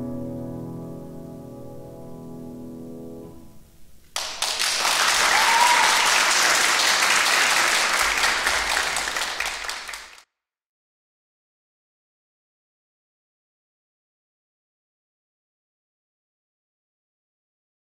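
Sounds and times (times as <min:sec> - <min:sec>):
sustained piano chord: 0:00.0 - 0:03.8
audience applause: 0:04.2 - 0:10.2.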